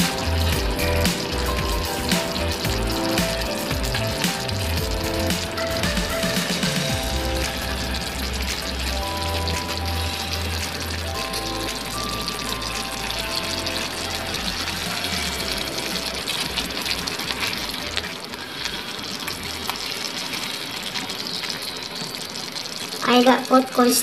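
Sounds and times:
background music with bass: 0.0s - 18.0s
gravy bubbling in frying pan: 0.0s - 24.0s.

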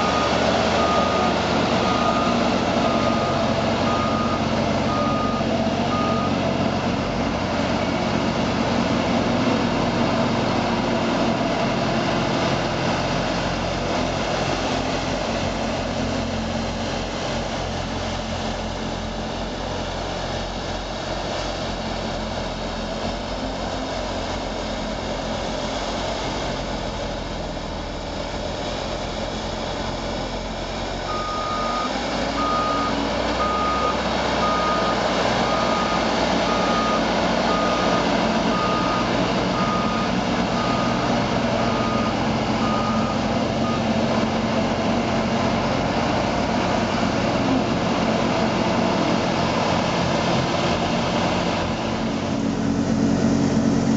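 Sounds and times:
back-up alarm beeping: 0.0s - 6.4s.

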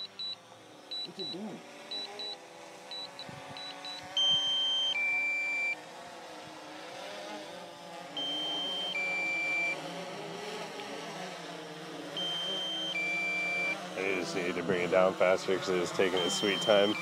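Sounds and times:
two-tone warning beep: 0.0s - 5.8s, 8.2s - 9.8s, 12.2s - 13.8s, 16.0s - 17.0s
drone propellers humming: 0.0s - 17.0s.

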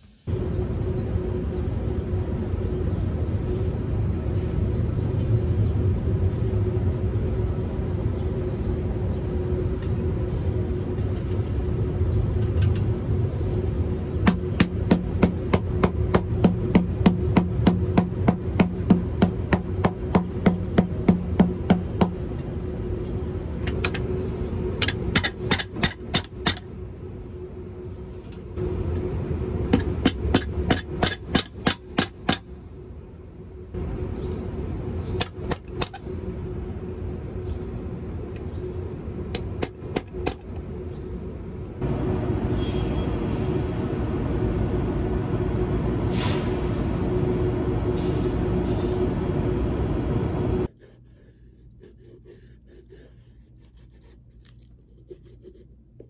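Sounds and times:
hammer striking rubber boot sole: 14.3s - 22.2s.

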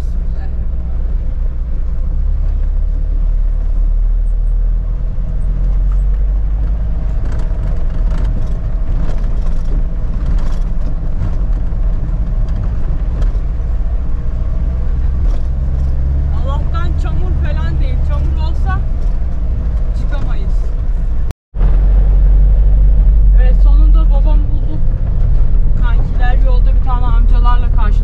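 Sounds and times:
vehicle engine and road rumble: 0.0s - 28.0s
knocks and rattles over gravel: 5.8s - 16.0s.

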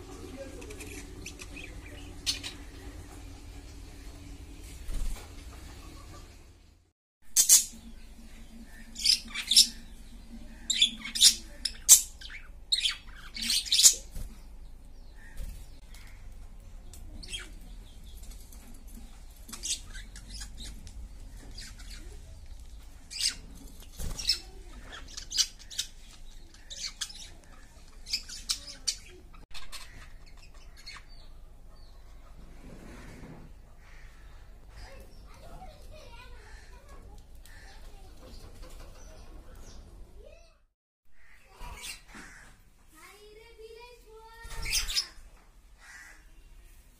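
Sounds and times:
budgerigars chirping: 8.7s - 9.9s, 10.5s - 14.0s.

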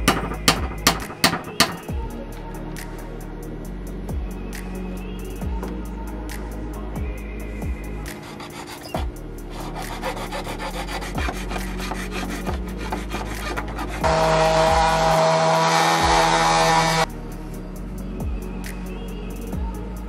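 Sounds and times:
faint background music: 0.0s - 20.0s
rotary tool grinding: 8.2s - 17.0s
blade scraping plastic: 8.5s - 14.5s.

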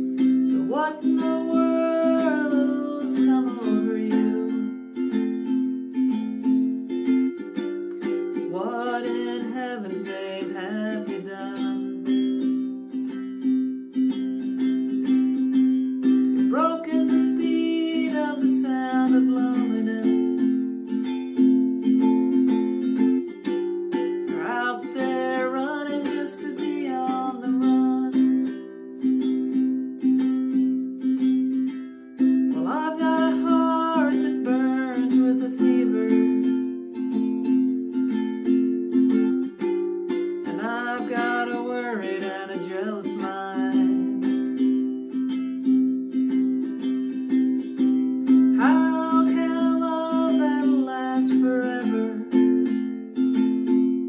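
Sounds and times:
person singing: 0.0s - 54.0s
ukulele strumming chords: 0.0s - 54.0s.

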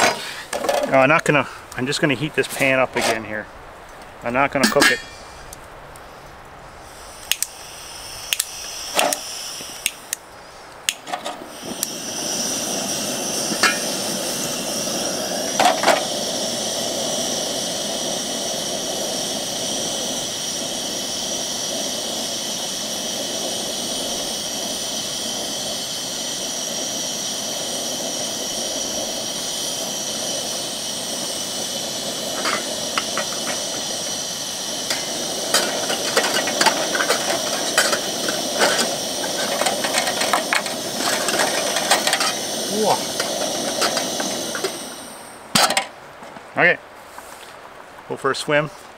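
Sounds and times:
gas flame hissing: 0.0s - 46.2s
pan clinking: 4.6s - 5.3s
stove igniter clicks: 7.2s - 7.6s, 8.3s - 10.2s, 10.8s - 12.0s, 32.3s - 44.9s.

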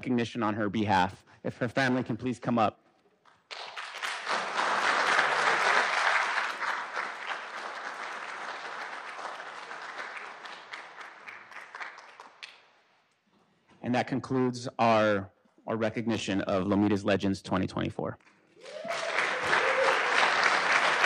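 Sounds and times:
audience applauding: 3.5s - 12.7s, 18.6s - 21.0s.

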